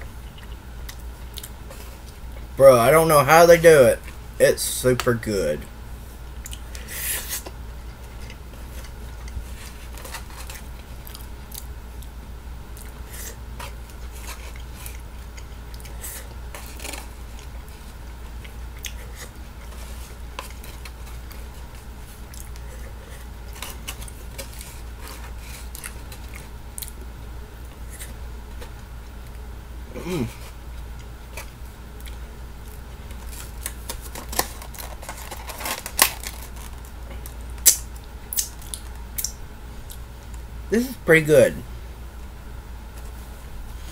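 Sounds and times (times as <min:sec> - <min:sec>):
steady low hum: 0:00.0 - 0:43.9
chewing: 0:00.2 - 0:02.4, 0:10.0 - 0:13.0, 0:13.9 - 0:21.6, 0:22.2 - 0:27.0, 0:31.0 - 0:33.7, 0:37.1 - 0:40.0.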